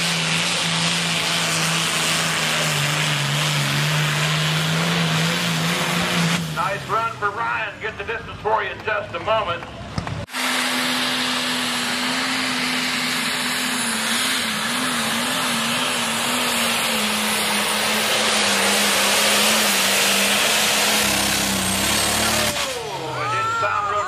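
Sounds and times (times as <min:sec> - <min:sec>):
diesel tractor engine straining: 0:00.0 - 0:24.0.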